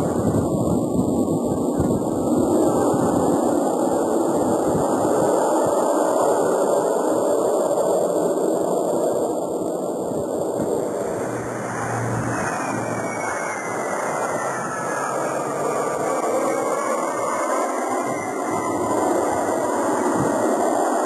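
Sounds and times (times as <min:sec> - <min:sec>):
high jet whine: 0:00.0 - 0:21.0
jet engines rumbling: 0:00.0 - 0:21.0.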